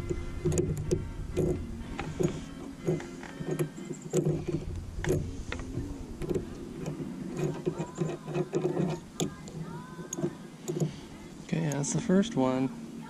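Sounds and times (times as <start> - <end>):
radio playing music with singing: 0.0 - 13.0.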